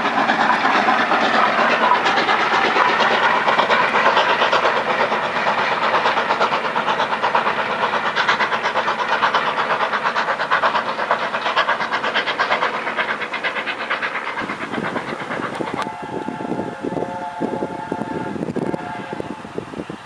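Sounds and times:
steam locomotive exhaust beats: 0.0s - 20.0s
steam whistle: 15.5s - 20.0s.

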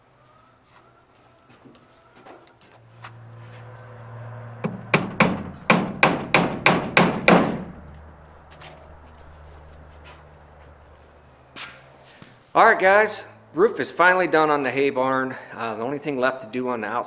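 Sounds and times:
hammer striking wood: 4.6s - 7.8s.

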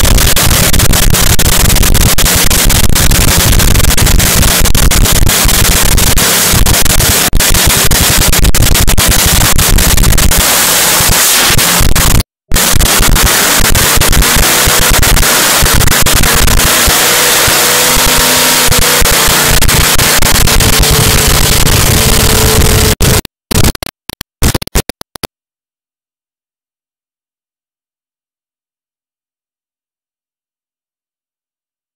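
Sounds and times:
loud race car engine running: 0.0s - 23.3s.

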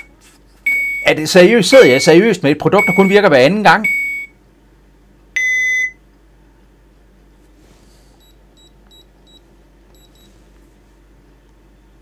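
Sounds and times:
alarm keypad beeping: 0.7s - 2.2s, 2.8s - 4.3s, 5.4s - 6.0s
short high key-press beeps: 5.4s - 6.0s, 8.2s - 10.3s.

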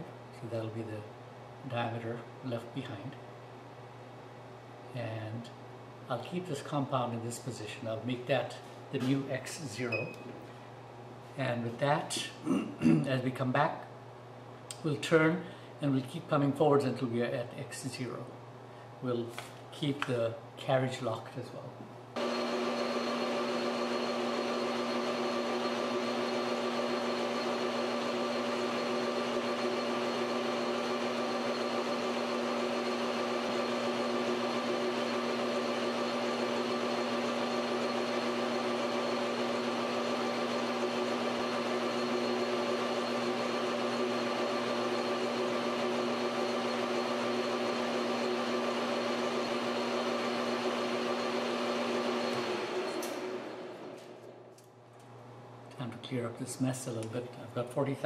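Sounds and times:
metal lathe running: 22.2s - 54.0s.

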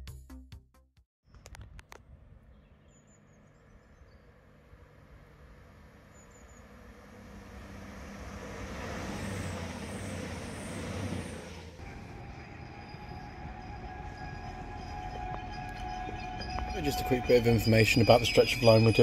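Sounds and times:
diesel train passing at speed: 3.2s - 19.0s.

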